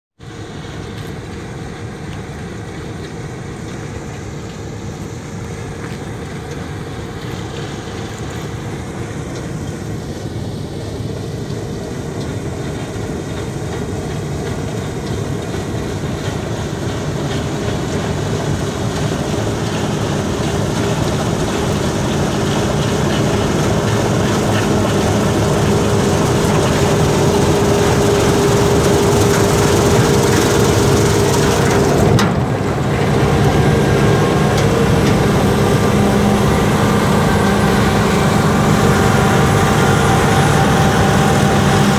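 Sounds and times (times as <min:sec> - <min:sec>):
combine harvester engine drone: 0:00.2 - 0:41.9
steady whine: 0:00.2 - 0:41.9.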